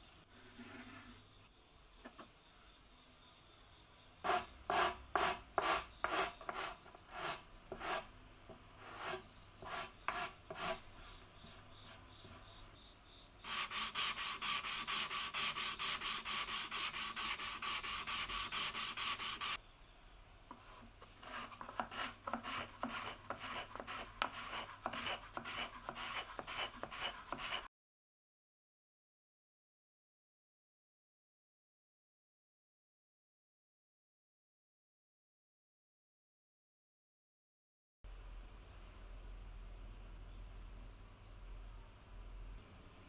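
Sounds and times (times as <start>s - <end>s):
sandpaper scraping wood: 4.3s - 8.1s, 8.8s - 11.2s, 13.4s - 19.6s, 21.2s - 27.7s.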